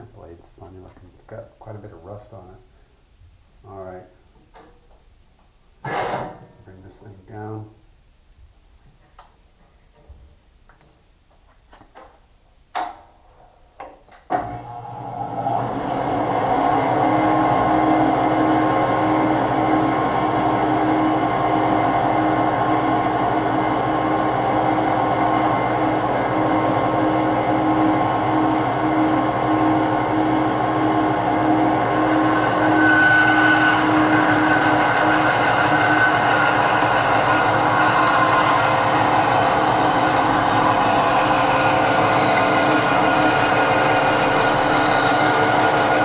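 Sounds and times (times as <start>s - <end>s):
bandsaw running: 25.4s - 46.0s
blade cutting wood: 31.4s - 46.0s.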